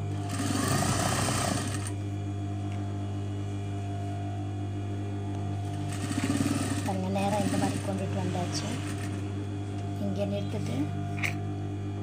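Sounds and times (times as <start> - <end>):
steady low hum: 0.0 - 12.0
sewing machine stitching: 0.2 - 1.9, 5.9 - 9.2.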